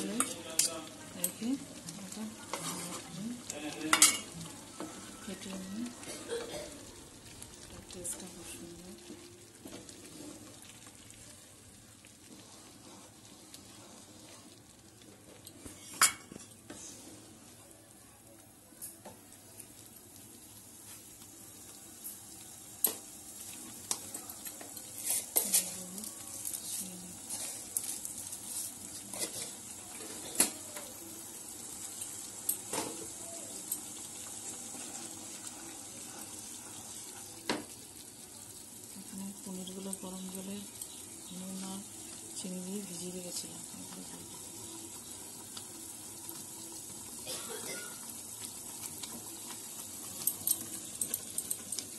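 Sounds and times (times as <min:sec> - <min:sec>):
simmering sizzle: 0:00.0 - 0:51.9
spatula stirring and scraping gravy: 0:02.3 - 0:05.2, 0:09.0 - 0:11.2, 0:12.0 - 0:17.4, 0:23.7 - 0:30.5.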